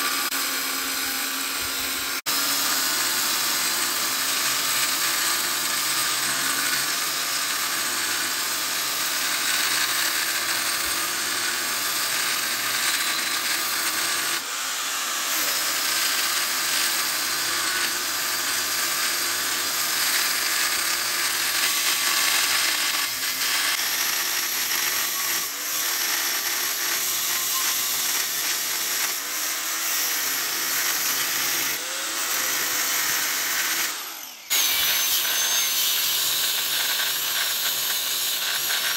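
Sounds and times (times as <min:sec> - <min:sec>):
angle grinder cutting steel: 0:00.0 - 0:38.9.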